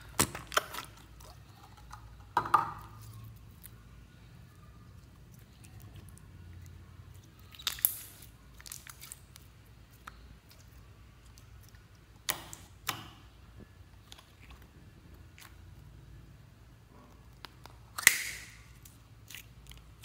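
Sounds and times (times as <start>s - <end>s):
slime squishing and popping: 0.0s - 1.3s, 7.4s - 13.2s, 17.3s - 20.0s.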